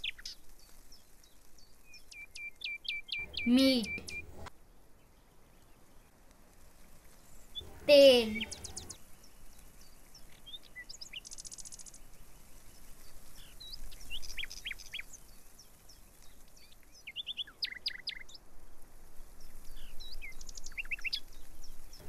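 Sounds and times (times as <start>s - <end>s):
faint steady hiss: 0.0s - 22.0s
birds chirping and whistling: 2.1s - 4.5s, 7.3s - 9.0s, 19.8s - 22.0s.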